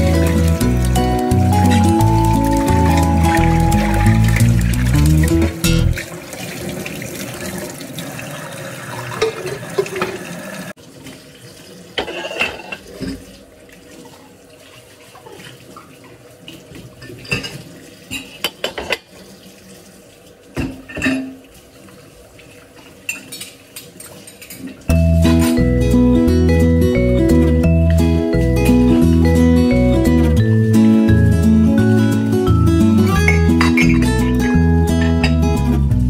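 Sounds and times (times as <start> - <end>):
dishes clinking and knocking: 12.0 - 13.2, 17.1 - 19.1, 20.6 - 21.4, 33.3 - 35.4.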